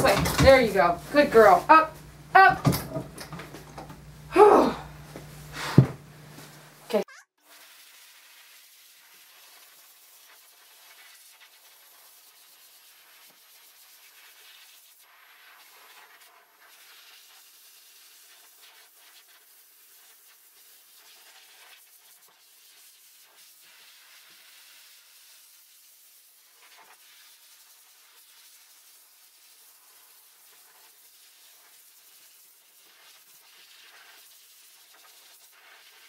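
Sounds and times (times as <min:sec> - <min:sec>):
dog dryer blowing air: 0:00.0 - 0:06.6.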